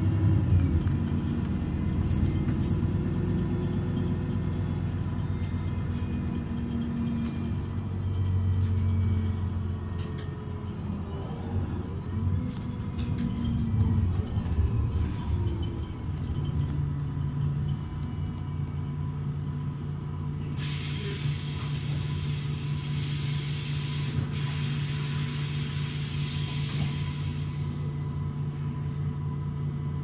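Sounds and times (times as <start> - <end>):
bus diesel engine idling: 0.0 - 30.0
compressed air hissing: 20.6 - 28.0.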